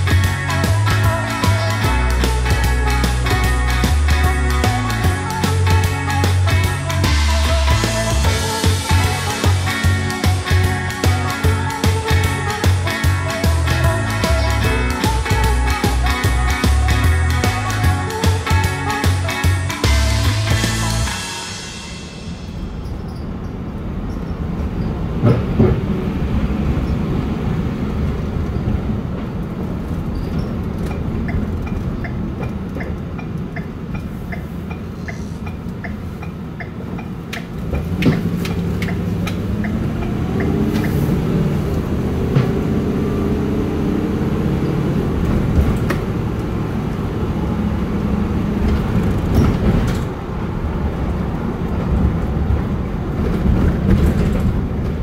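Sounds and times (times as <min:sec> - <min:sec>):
car engine and road noise: 0:00.0 - 0:55.0
turn signal ticking: 0:30.8 - 0:41.1.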